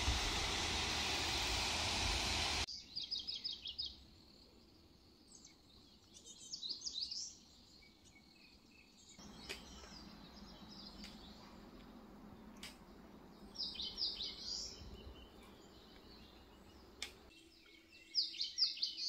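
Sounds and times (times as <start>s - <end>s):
waterfall and river rushing: 0.0s - 2.7s
small birds chirping: 2.7s - 19.0s.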